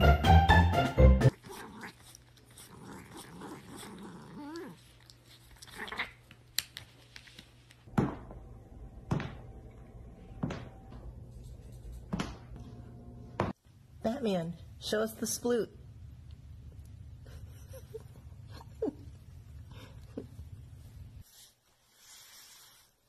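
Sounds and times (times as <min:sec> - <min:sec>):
music: 0:00.0 - 0:01.3
cat vocalizing: 0:01.3 - 0:06.3.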